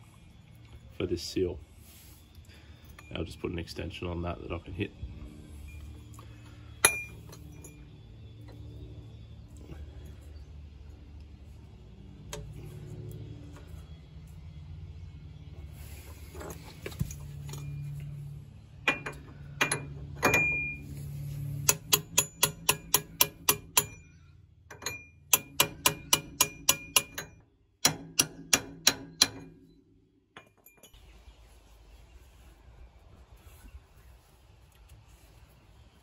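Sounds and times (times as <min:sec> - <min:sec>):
hammer striking metal: 0:06.8 - 0:07.7, 0:18.9 - 0:20.8, 0:21.6 - 0:24.1, 0:24.7 - 0:29.6.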